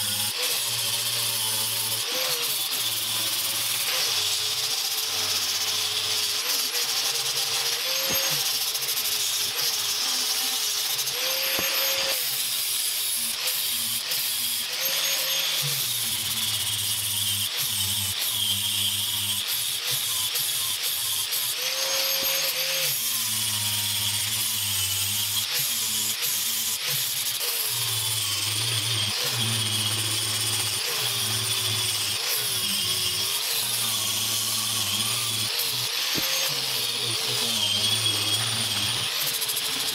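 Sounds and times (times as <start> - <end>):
angle grinder grinding steel: 0.0 - 39.9.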